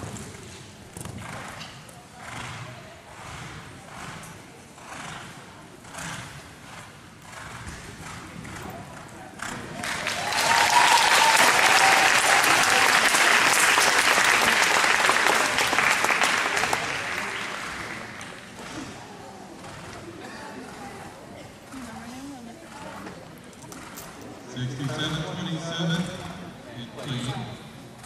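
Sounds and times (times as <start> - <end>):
spectators clapping: 9.8 - 18.5.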